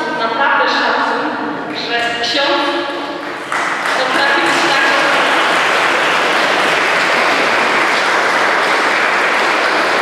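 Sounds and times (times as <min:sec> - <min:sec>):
people clapping: 0:03.2 - 0:10.0.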